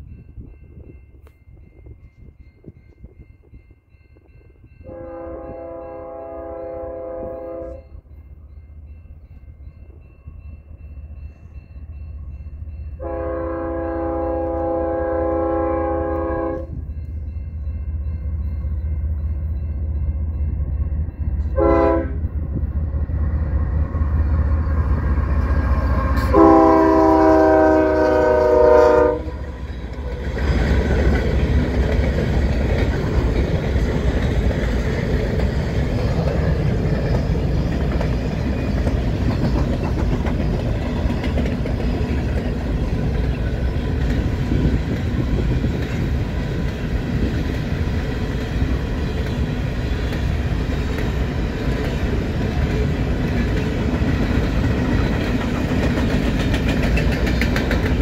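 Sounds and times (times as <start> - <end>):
diesel locomotives rumbling: 0.0 - 58.0
train cars rolling past: 0.0 - 58.0
locomotive air horn blasts: 4.8 - 8.0, 13.0 - 16.8, 21.5 - 22.3, 26.1 - 29.4.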